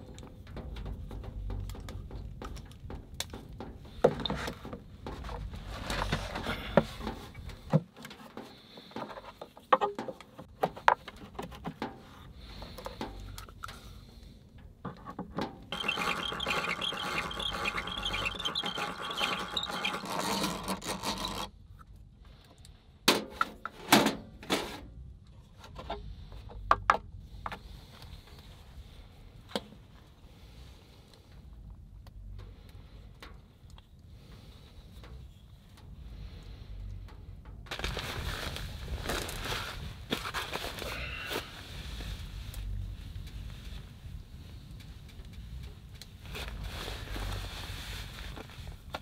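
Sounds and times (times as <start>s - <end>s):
hand drill rattling whir: 15.7s - 21.5s.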